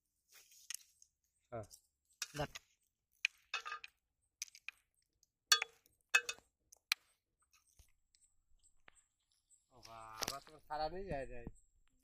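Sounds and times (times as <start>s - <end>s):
metal bowl clinking: 5.5s - 6.4s.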